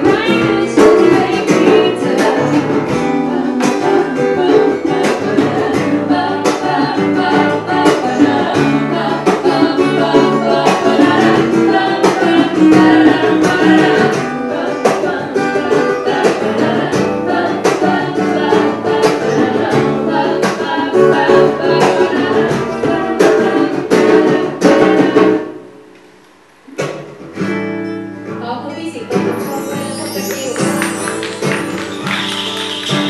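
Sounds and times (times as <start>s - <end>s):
strummed acoustic guitar: 0.0s - 33.0s
wooden flute playing: 29.5s - 33.0s.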